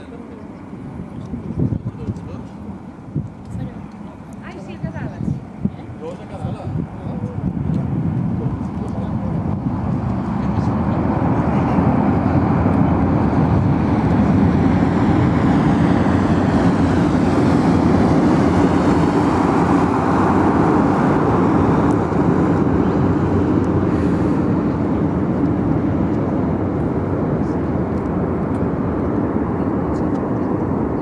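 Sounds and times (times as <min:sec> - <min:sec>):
distant jet engines rumbling: 0:00.0 - 0:31.0.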